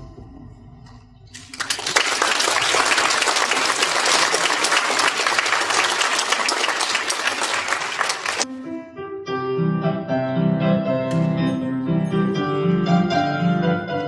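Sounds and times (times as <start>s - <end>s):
audience applause: 1.4s - 8.5s
piano chord: 8.5s - 14.0s.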